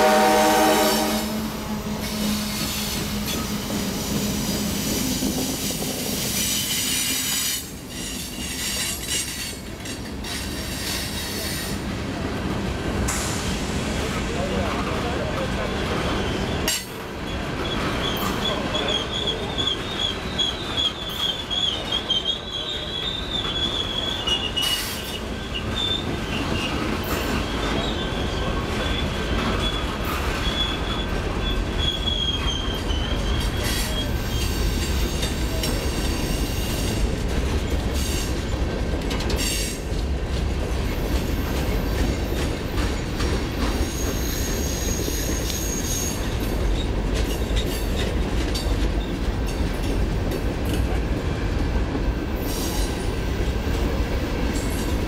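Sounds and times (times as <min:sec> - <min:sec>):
wheels clacking over rail joints: 0:14.8 - 0:44.2, 0:44.8 - 0:52.0
high wheel squeal: 0:15.6 - 0:35.3, 0:43.6 - 0:48.0.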